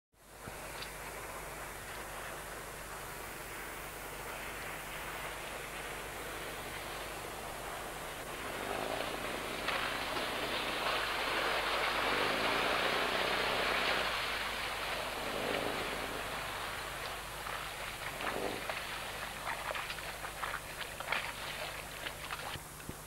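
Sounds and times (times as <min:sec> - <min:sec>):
speedboat engine and spray rushing: 0:00.6 - 0:22.6.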